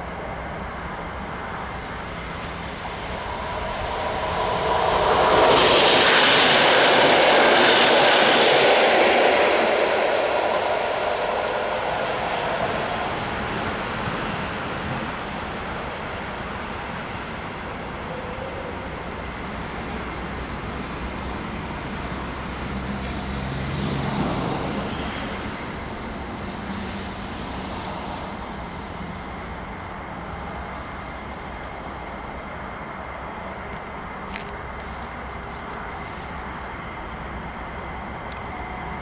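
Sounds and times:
road traffic noise: 0.0s - 39.0s
vehicle passing: 2.6s - 14.8s.

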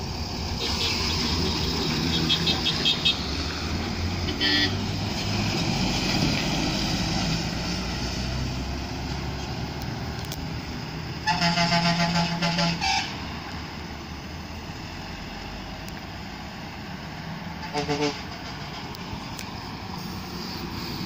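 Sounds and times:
truck and bus engines passing: 0.0s - 21.0s
vehicle horn beeps: 0.6s - 1.4s, 2.0s - 3.2s, 4.3s - 4.8s, 11.2s - 13.1s, 17.6s - 18.6s.

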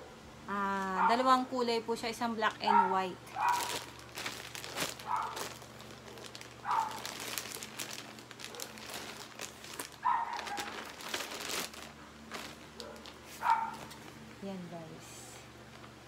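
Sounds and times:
plastic bag crinkling: 3.2s - 14.2s.

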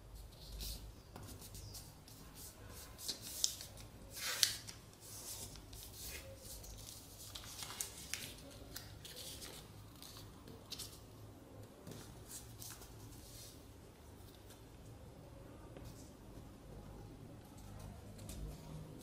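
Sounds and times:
paper rustling and crinkling: 2.8s - 11.0s
sharp paper crackles: 2.9s - 11.0s.

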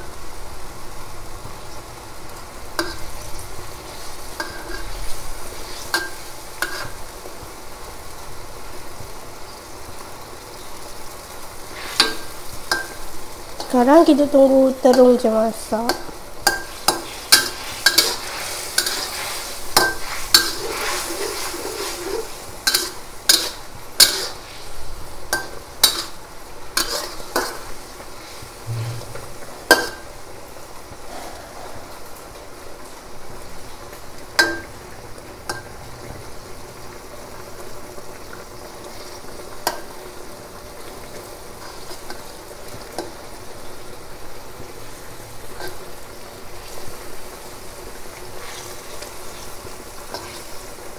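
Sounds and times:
pan sizzling: 0.0s - 50.9s
metal spatula scraping a wok: 3.9s - 7.0s, 11.7s - 13.0s, 16.5s - 24.8s, 26.8s - 30.1s.

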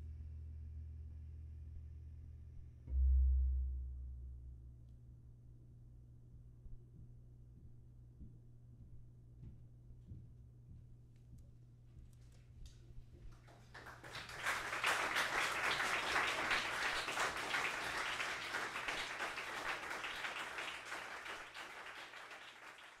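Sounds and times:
audience applauding: 13.4s - 23.0s.

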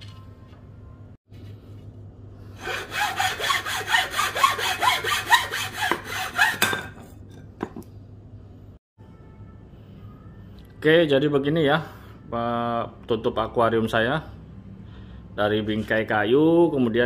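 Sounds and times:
hacksaw cutting wood: 2.6s - 6.8s.

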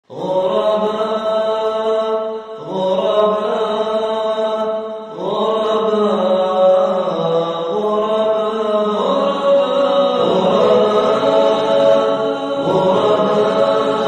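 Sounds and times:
chanting in long held notes: 0.1s - 14.0s.

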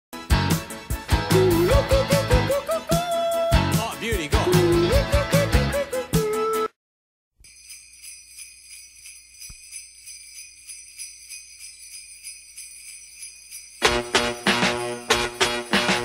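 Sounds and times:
full-range music: 0.2s - 6.7s, 13.8s - 16.0s
sleigh bells jingling: 1.3s - 4.8s, 7.4s - 16.0s.

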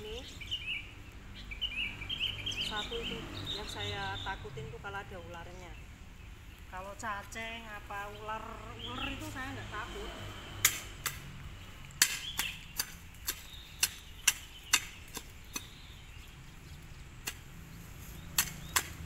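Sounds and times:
sickle chopping into weeds and soil: 10.5s - 19.0s.

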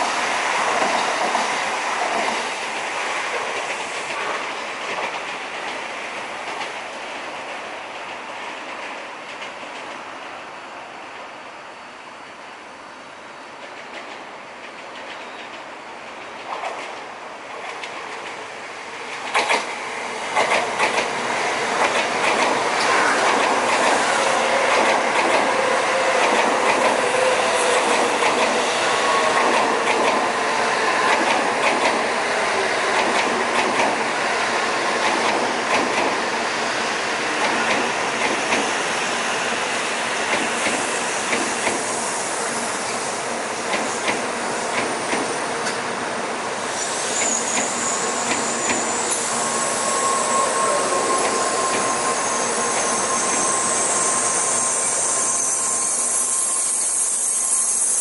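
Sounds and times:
train wheels rumbling on rail: 0.0s - 11.6s, 12.2s - 58.0s.

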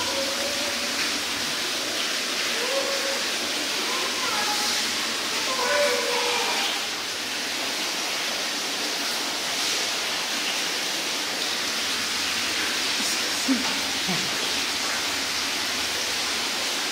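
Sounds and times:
faint voice: 2.5s - 6.9s.

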